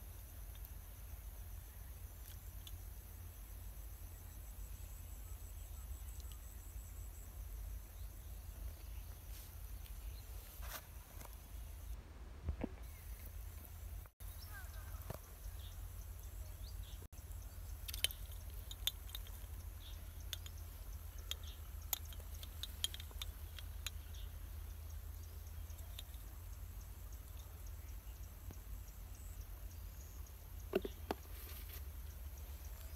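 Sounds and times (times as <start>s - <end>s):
small clicks: 17.8s - 24.3s.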